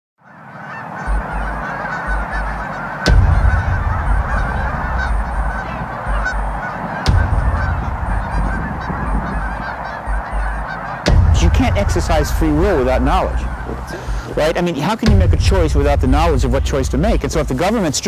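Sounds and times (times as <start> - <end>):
geese honking in flight: 0.2 - 18.0
low rumble: 1.1 - 17.8
sharp thump: 3.1 - 10.4, 11.1 - 14.4, 15.0 - 17.4.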